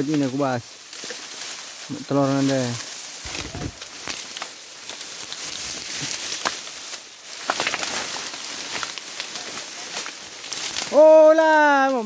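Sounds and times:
dry grass rustling: 0.0s - 12.0s.

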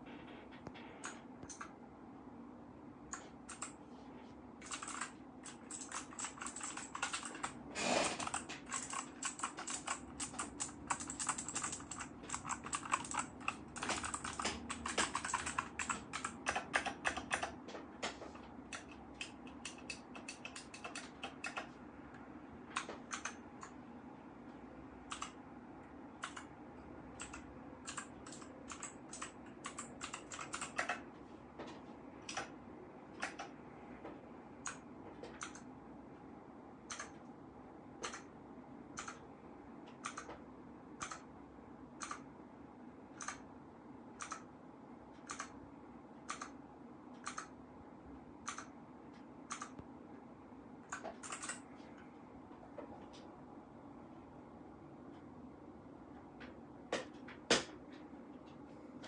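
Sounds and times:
mechanical keyboard keys clacking: 3.5s - 3.8s, 4.6s - 21.7s, 25.1s - 25.4s, 27.2s - 31.0s, 44.2s - 44.4s, 50.9s - 51.6s.

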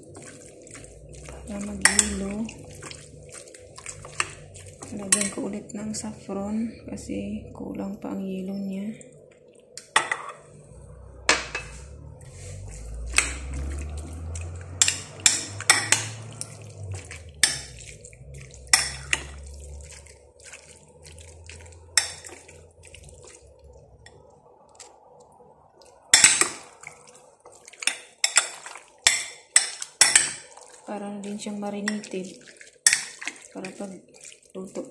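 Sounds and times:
low rumble: 0.0s - 9.3s, 10.5s - 26.0s
dishes clattering: 9.9s - 10.5s
utensil clinking against glass bowl: 27.8s - 30.5s.

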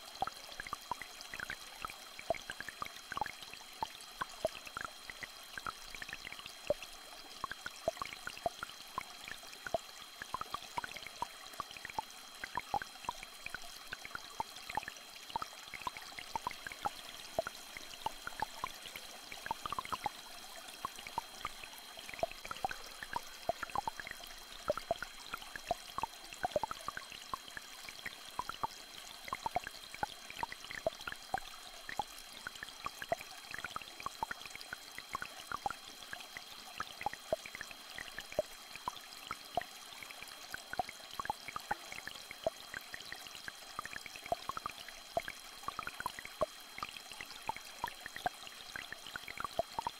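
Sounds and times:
small stream flowing: 0.0s - 49.9s
water plinks and drips: 0.0s - 49.9s.

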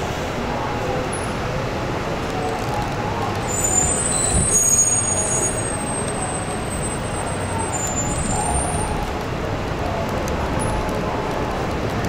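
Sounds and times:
subway train rumbling: 0.0s - 12.0s
high wheel squeals: 3.4s - 9.0s.

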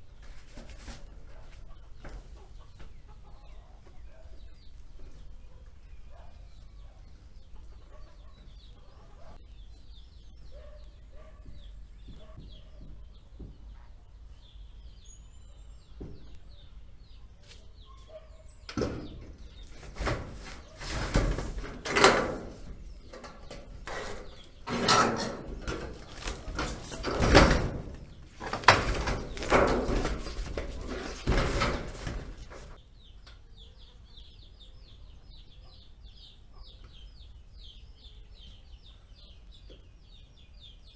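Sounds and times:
metal sheets scraping and clattering: 18.7s - 32.8s.

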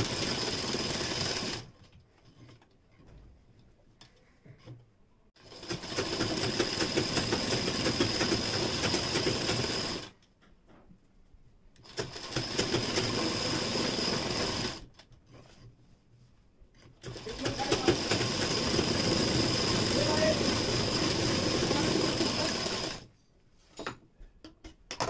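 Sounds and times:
sewing machine whining: 0.0s - 1.7s, 5.4s - 10.2s, 11.8s - 14.9s, 17.0s - 23.1s.

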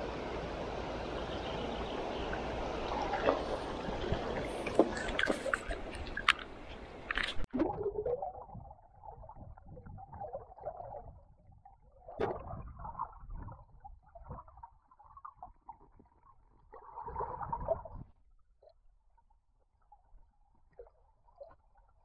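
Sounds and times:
water surging: 0.0s - 7.1s
underwater river gurgling: 0.0s - 22.0s.

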